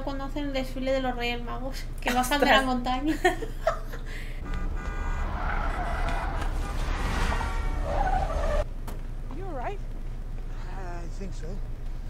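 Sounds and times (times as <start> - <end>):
car engine rumble: 4.4 - 10.7.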